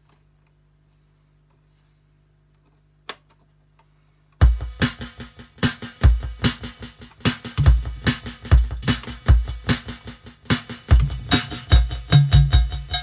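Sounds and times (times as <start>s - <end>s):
electronic drum beat: 4.4s - 13.0s.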